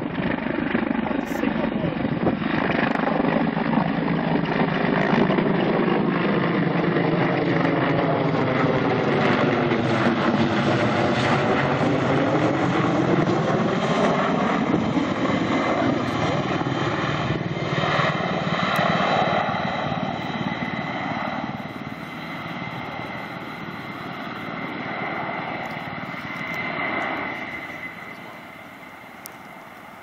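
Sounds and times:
helicopter flying past: 0.0s - 30.0s.

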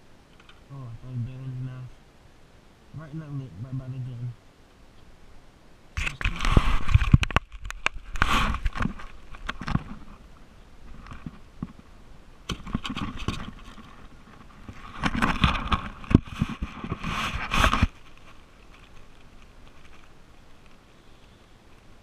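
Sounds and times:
net rustling and scraping: 6.1s - 10.2s, 12.5s - 20.8s.

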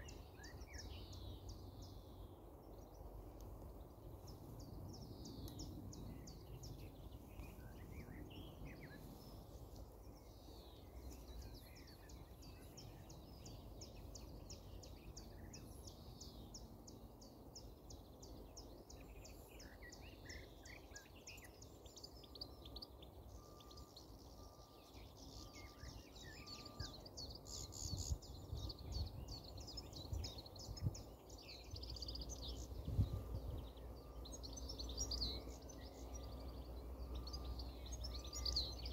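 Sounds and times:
low rumbling background: 0.0s - 19.6s
small birds chirping: 0.0s - 38.9s.

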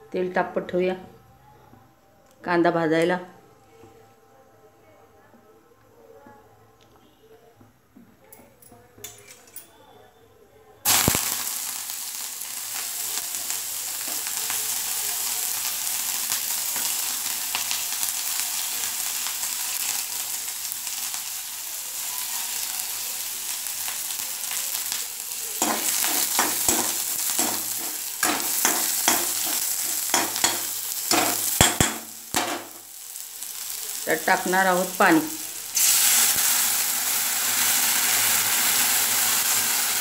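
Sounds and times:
onion sizzling in hot oil: 10.8s - 40.0s
spatula scraping a pan: 25.6s - 31.7s.

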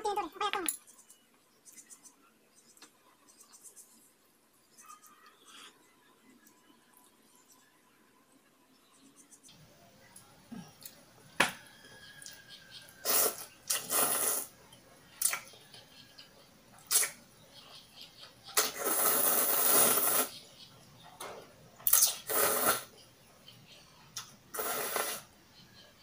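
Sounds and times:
person slurping noodles: 13.0s - 14.5s, 18.6s - 20.3s, 21.9s - 22.9s, 24.6s - 25.3s.

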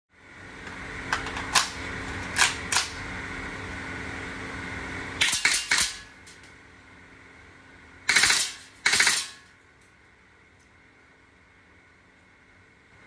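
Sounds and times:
steady background hum: 0.1s - 13.0s
airsoft rifle shots: 8.1s - 9.4s.

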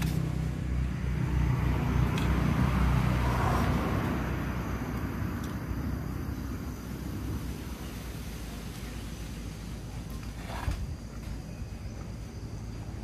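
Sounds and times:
vehicle engine passing by: 0.0s - 9.4s.

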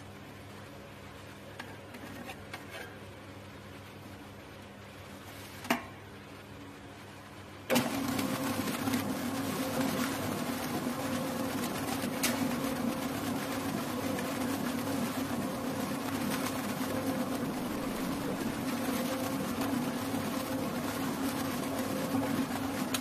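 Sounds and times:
planetary mixer motor humming: 7.7s - 23.0s.

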